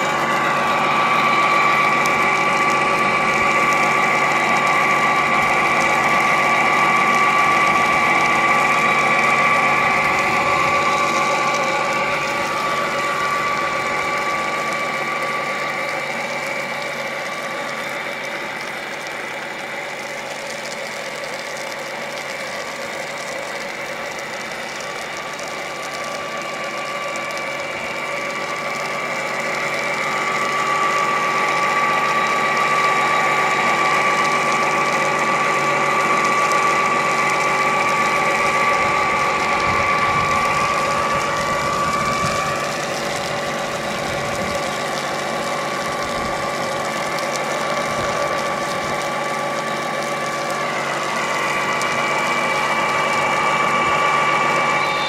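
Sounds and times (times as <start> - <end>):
small electric pump whining: 0.0 - 55.0
water spraying: 0.0 - 55.0.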